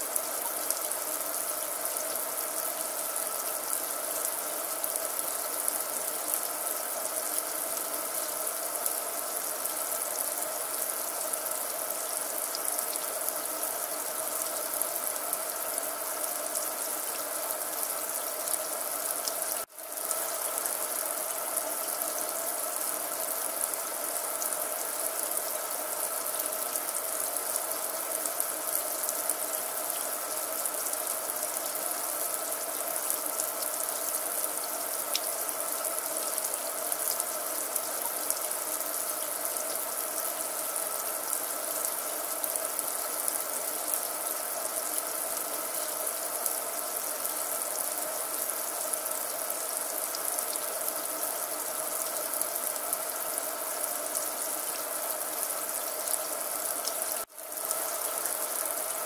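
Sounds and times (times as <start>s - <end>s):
water running from a tap: 0.0s - 59.0s.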